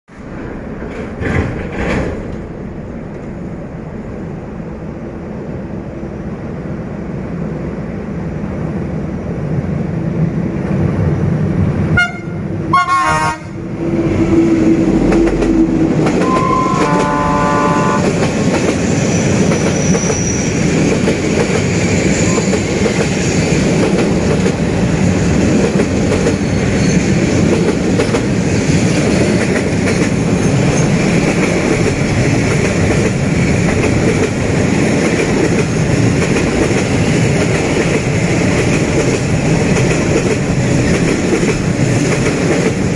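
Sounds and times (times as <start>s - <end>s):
train rumbling over bridge: 0.1s - 42.9s
locomotive horn: 12.0s - 13.6s, 16.2s - 18.2s.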